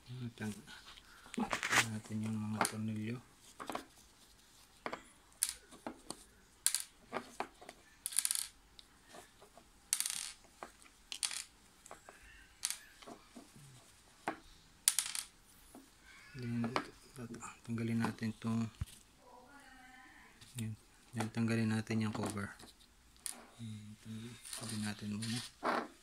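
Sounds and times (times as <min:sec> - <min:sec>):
small screws clicking and clinking: 0:08.0 - 0:08.9, 0:09.9 - 0:13.2.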